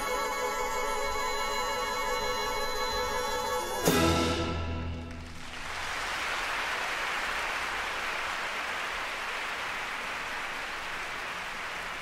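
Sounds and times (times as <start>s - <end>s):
orchestral chord: 2.2s - 5.2s
audience applauding: 4.9s - 12.0s.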